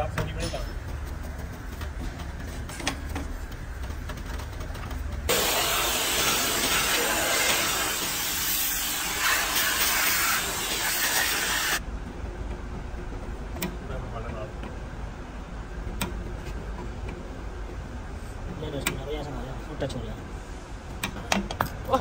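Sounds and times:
compressed air blow gun hissing: 5.3 - 11.8.

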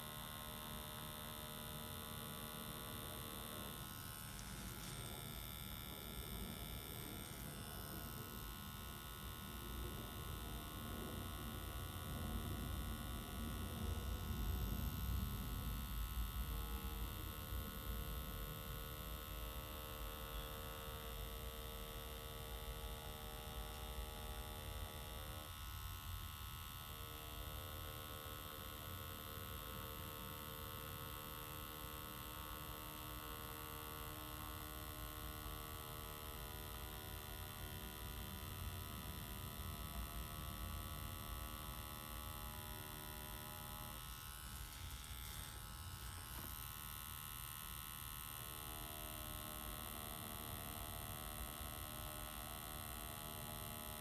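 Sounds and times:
tattoo machine humming: 0.0 - 54.0.

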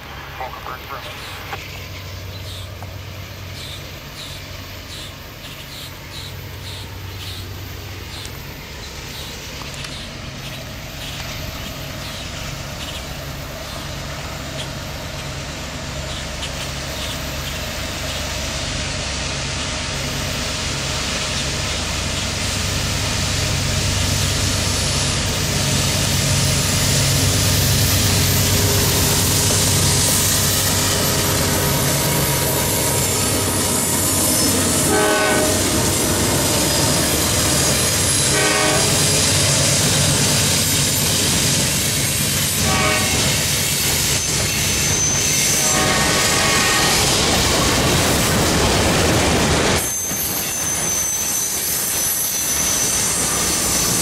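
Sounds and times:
diesel locomotive rumble: 0.0 - 54.0
train horn blasts: 32.2 - 36.6, 37.6 - 39.6, 42.4 - 43.6, 44.2 - 47.2.

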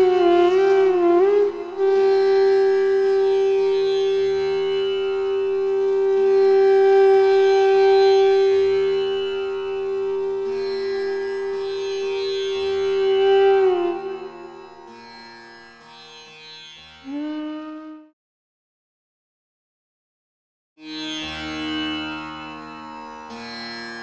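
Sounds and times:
long held note: 0.0 - 15.0, 17.0 - 18.1.

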